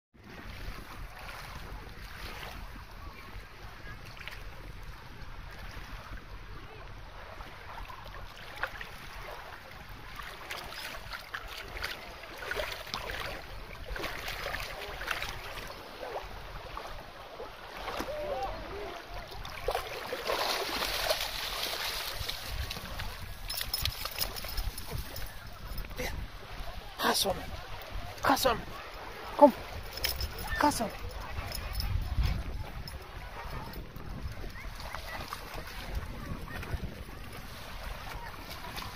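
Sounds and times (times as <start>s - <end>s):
lake water lapping: 0.2s - 38.9s
wind rumbling on microphone: 0.2s - 38.9s
dog splashing in water: 19.4s - 25.2s.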